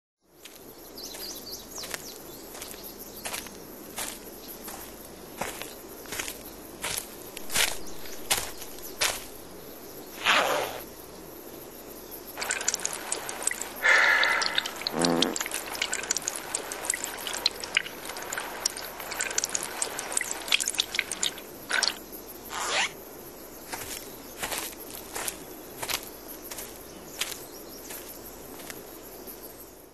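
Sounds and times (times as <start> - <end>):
liquid splashing on forest floor: 1.8 - 9.4, 12.4 - 22.0, 23.7 - 28.8
rustling in leaf litter: 3.2 - 9.5, 12.4 - 22.6, 23.7 - 28.8.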